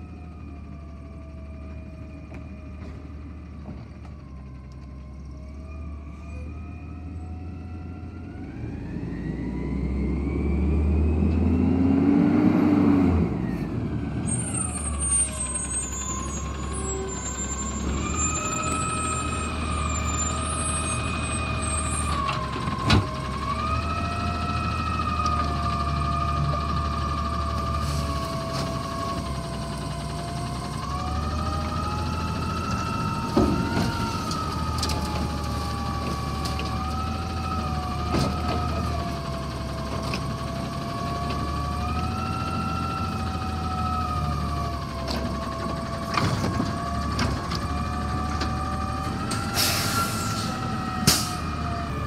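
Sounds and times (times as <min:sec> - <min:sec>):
truck engine running: 0:13.0 - 0:52.0.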